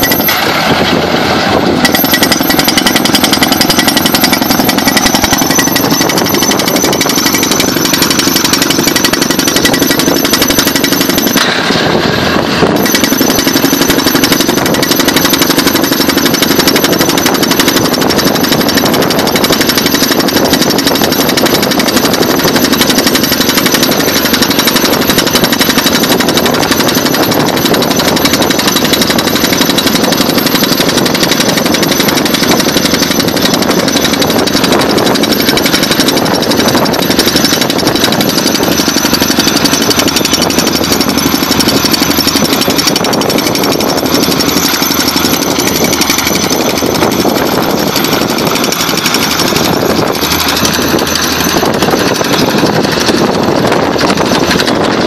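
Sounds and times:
pneumatic hammer rapid hammering: 0.0 - 55.0.

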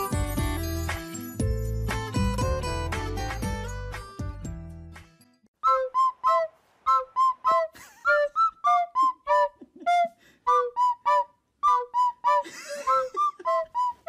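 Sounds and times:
bouncy background music: 0.0 - 5.1.

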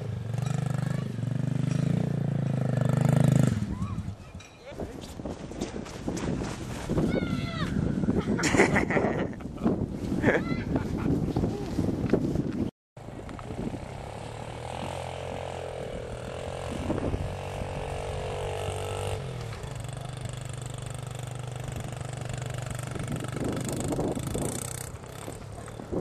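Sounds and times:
dirt bike engine running: 0.0 - 4.2, 13.0 - 26.0.

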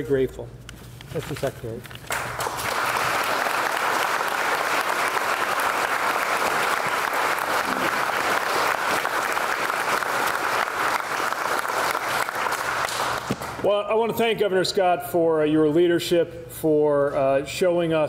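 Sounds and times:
crowd applause: 2.1 - 13.6.

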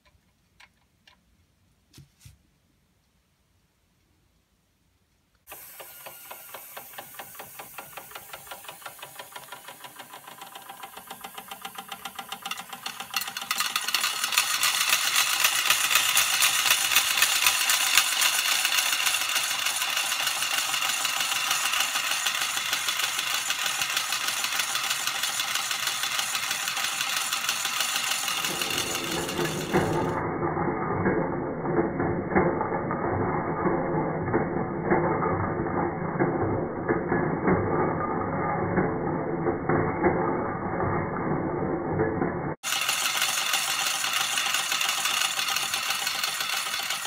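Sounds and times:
toy steam engine ticking rattle: 5.5 - 30.2, 42.6 - 47.0.

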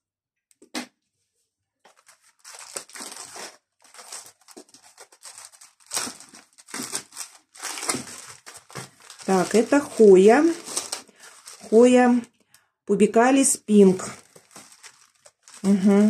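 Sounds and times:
plastic packaging crinkling: 1.9 - 12.3, 13.7 - 16.0.

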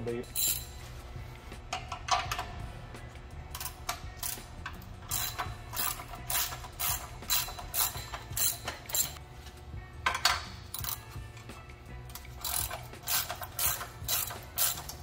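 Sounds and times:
ratchet wrench clicking: 0.3 - 0.8, 3.5 - 9.2, 10.0 - 11.2, 12.1 - 15.0.

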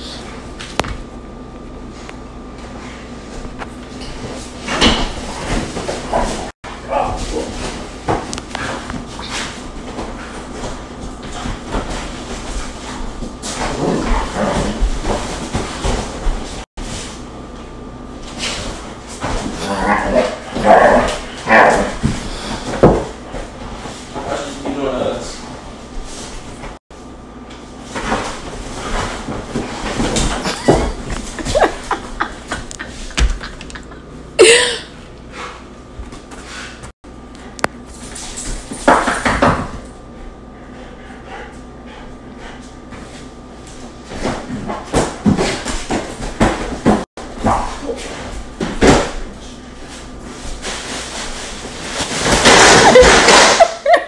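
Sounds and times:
dog and man scuffling: 1.9 - 26.8, 27.6 - 33.8, 42.5 - 53.6.

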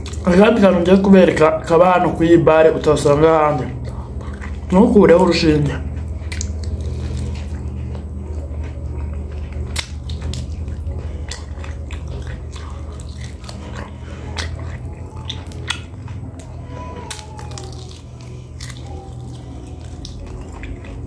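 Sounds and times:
man chewing meat: 0.0 - 21.0
steady low hum: 0.0 - 21.0.

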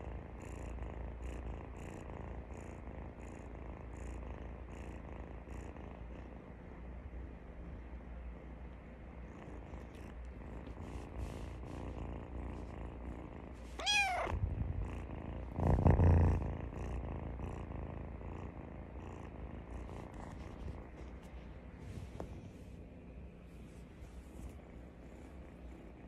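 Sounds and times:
kitten purring: 0.0 - 26.0
kitten meowing: 13.8 - 14.4
loud low rumble: 14.3 - 16.8.

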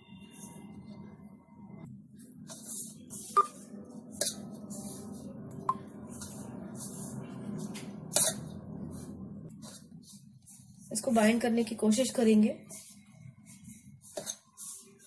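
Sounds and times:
steady low hum: 0.1 - 11.5.

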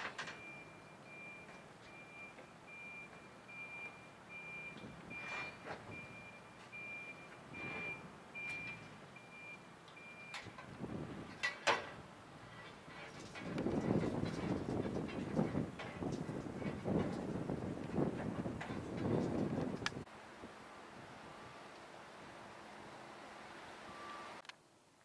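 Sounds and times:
reversing alarm beeping: 0.3 - 10.5, 23.9 - 24.4.

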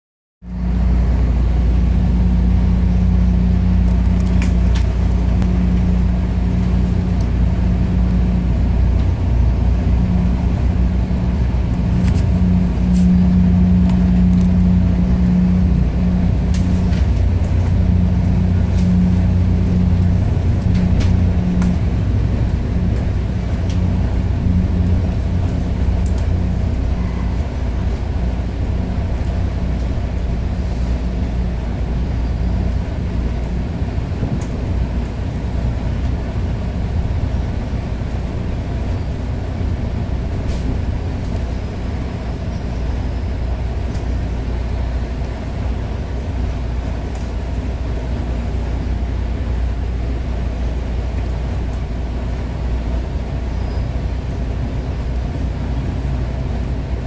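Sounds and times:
train rumble with humming tone: 0.4 - 57.0.

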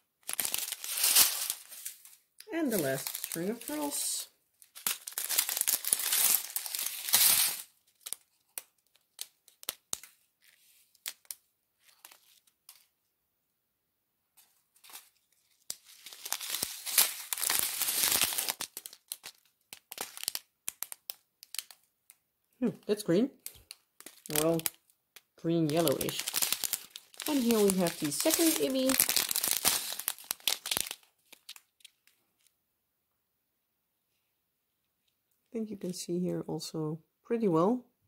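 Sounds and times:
plastic bags crinkling: 0.0 - 12.9, 14.4 - 21.9, 23.4 - 32.5.

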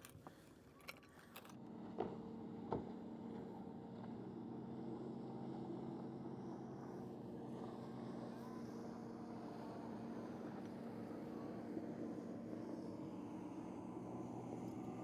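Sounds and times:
boat engine running: 0.0 - 15.0.

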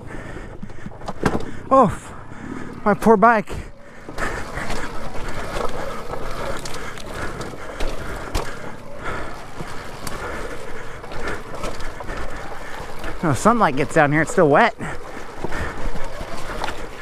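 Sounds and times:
dirt bike rattling over rocks: 2.8 - 17.0.

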